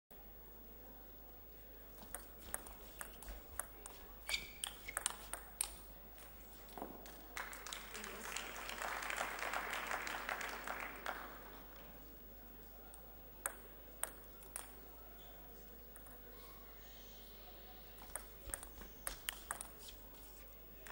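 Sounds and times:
table tennis ball ticking: 2.0 - 5.8, 18.0 - 19.8
audience applauding: 7.3 - 12.0.

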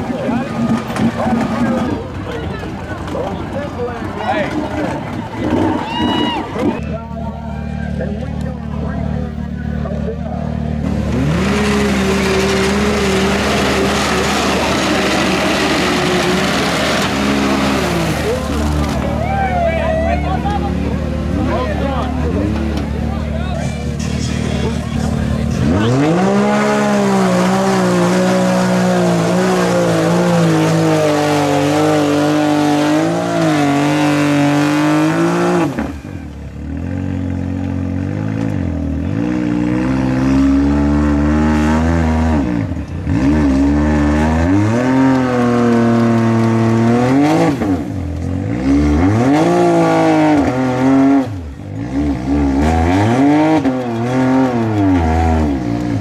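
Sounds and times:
engine revving hard: 10.7 - 19.2, 24.1 - 36.0, 39.0 - 56.0.

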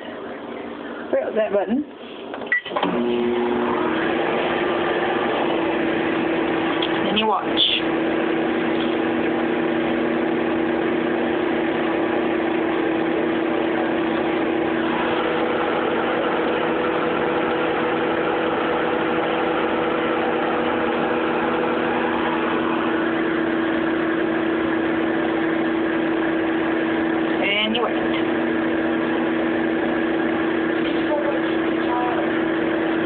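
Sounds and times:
microwave fan noise: 0.0 - 33.0
microwave oven hum: 0.0 - 33.0.

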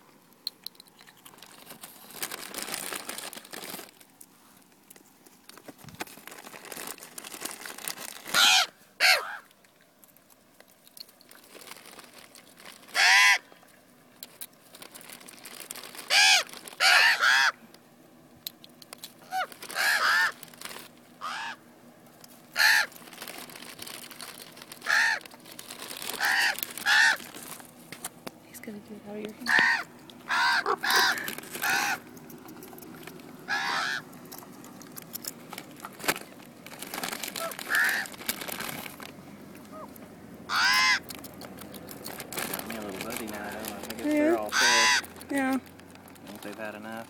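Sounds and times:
ravens cawing: 8.3 - 9.5, 12.9 - 13.6, 16.0 - 17.7, 19.2 - 20.5, 21.2 - 21.7, 22.5 - 23.0, 24.8 - 25.4, 26.0 - 27.6, 29.4 - 32.1, 33.4 - 34.2, 37.3 - 38.2, 39.7 - 41.2, 44.4 - 45.3.

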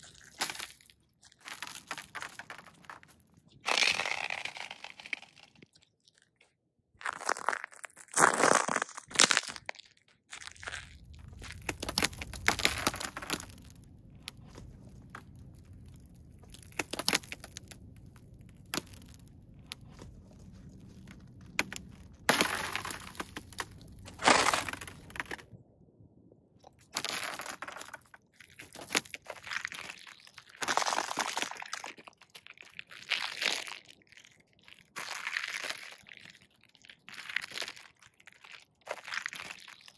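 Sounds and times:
ice crunching under boots: 0.0 - 5.8, 7.0 - 25.5, 26.7 - 33.9
ice snapping: 0.0 - 5.8, 7.0 - 9.8, 10.4 - 25.4, 27.0 - 33.9
low steady rumble: 10.6 - 26.6.

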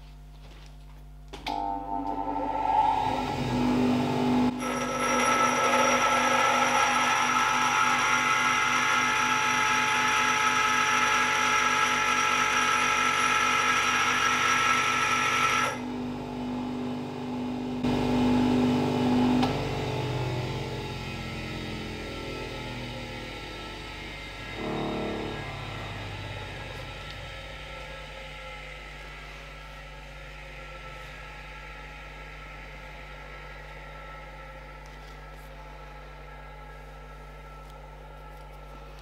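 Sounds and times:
grinder motor winding down: 1.5 - 15.9, 17.8 - 28.8
power grinder grinding steel: 2.3 - 15.8, 24.2 - 27.5.

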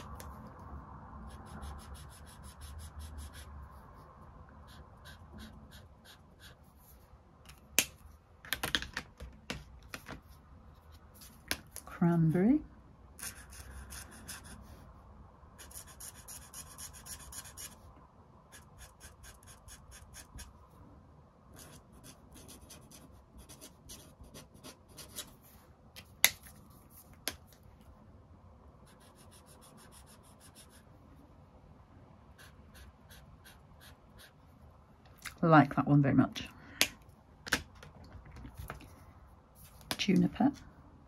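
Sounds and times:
marker scratching on paper: 1.3 - 4.0, 4.6 - 7.0, 13.2 - 14.8, 15.6 - 17.8, 18.5 - 20.6, 21.6 - 25.4, 28.8 - 30.9, 32.4 - 34.4.

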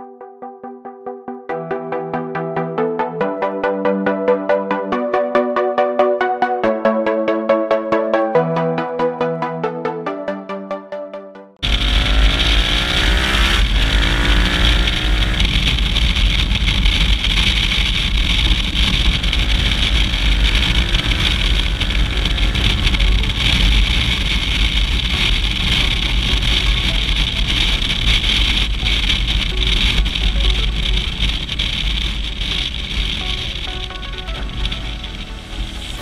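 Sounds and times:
wind rumble on microphone: 11.6 - 33.7
motorcycle engine revving: 11.6 - 36.0.

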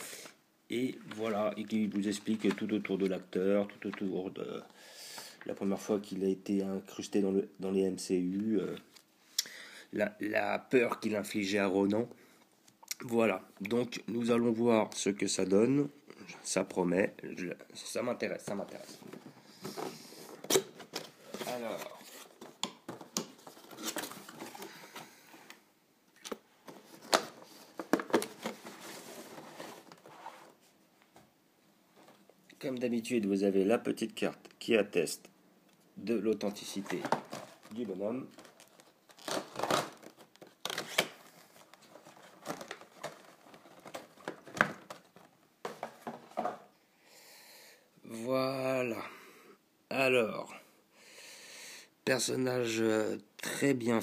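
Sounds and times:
packaging clicks and rustles: 26.2 - 30.2, 36.6 - 46.6.

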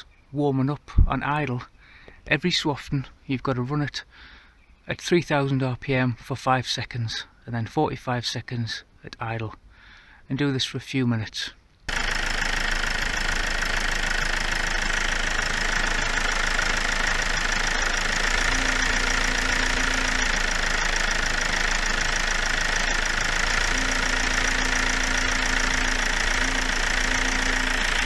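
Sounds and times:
diesel engine idling: 11.9 - 28.0.

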